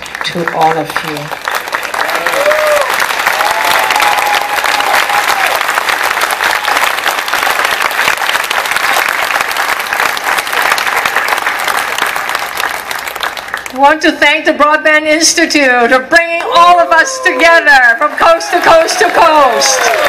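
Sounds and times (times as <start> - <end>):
large crowd applauding: 0.0 - 13.8, 16.4 - 20.0
voices cheering: 1.7 - 7.1, 16.3 - 20.0.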